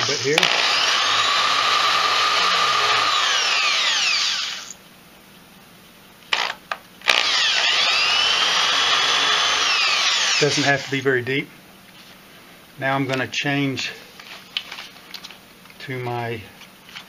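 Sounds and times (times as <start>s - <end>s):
electric drill whining into wood: 0.0s - 4.8s, 7.1s - 11.0s.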